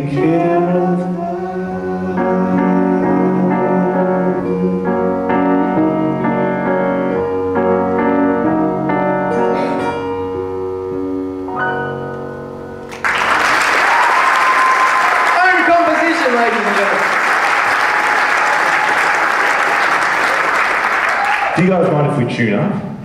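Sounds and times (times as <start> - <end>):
grand piano chords: 0.0 - 13.8
audience applause: 12.9 - 21.8.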